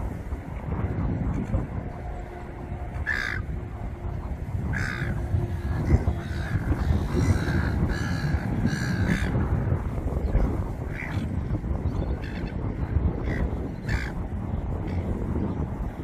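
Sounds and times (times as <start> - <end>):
low rumbling background noise: 0.0 - 16.0
raven cawing: 3.0 - 3.5, 4.6 - 9.4, 13.2 - 14.2.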